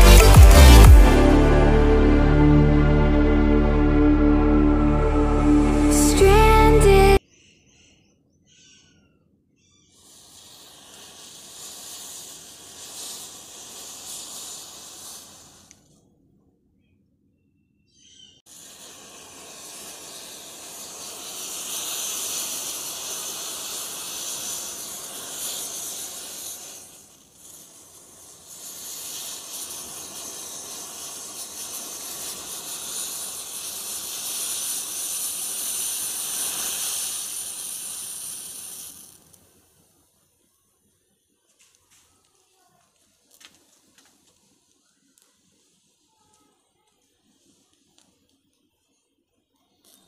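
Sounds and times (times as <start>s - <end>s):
match heads igniting hiss: 0.0s - 1.4s, 10.0s - 16.0s, 18.5s - 39.9s.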